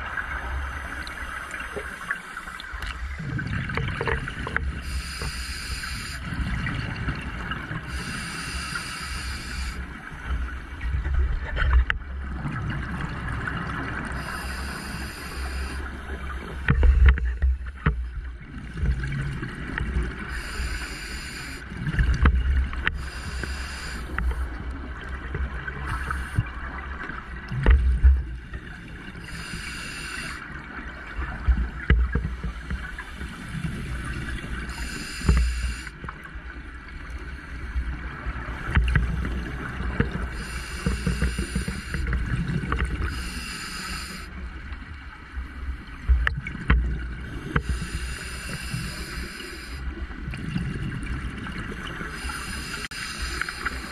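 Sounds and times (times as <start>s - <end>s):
regulator inhale hiss: 4.7s - 6.4s, 7.9s - 9.9s, 14.2s - 16.0s, 20.2s - 21.7s, 22.8s - 24.6s, 25.8s - 26.5s, 29.2s - 30.5s, 32.5s - 36.0s, 40.3s - 42.2s, 43.0s - 44.4s, 47.4s - 50.0s, 52.1s - 53.9s.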